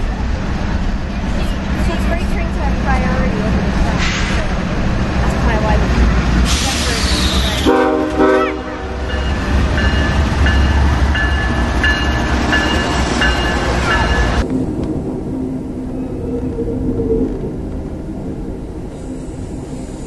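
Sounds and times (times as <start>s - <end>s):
locomotive engine rumble: 0.0s - 20.0s
train horn blast: 7.3s - 9.3s
locomotive bell ringing: 8.3s - 14.4s.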